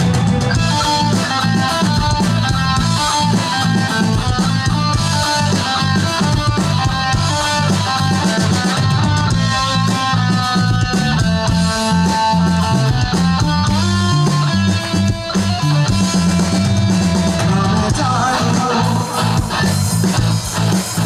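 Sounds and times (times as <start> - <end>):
bass: 0.0 - 21.0
drum kit: 0.0 - 21.0
electric guitar melody: 0.0 - 21.0.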